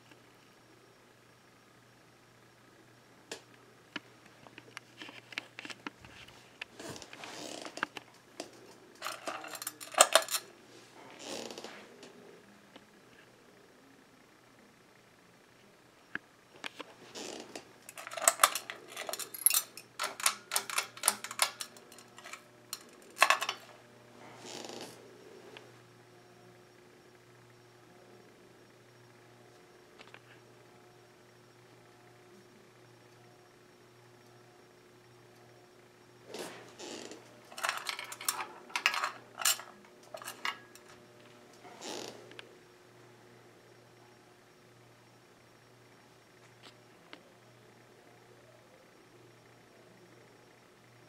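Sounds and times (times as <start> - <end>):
ceiling fan motor hum: 0.0 - 51.0
hard objects clinking: 8.4 - 10.5, 17.9 - 23.7, 37.5 - 41.0
metal chain rattling: 9.0 - 10.5, 17.9 - 23.6, 37.5 - 40.9.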